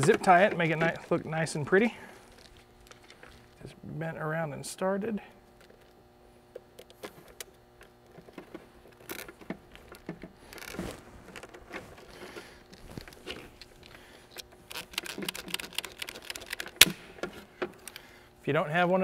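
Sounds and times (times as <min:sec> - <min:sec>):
zip ties rustling and clicking: 0:06.6 - 0:18.1.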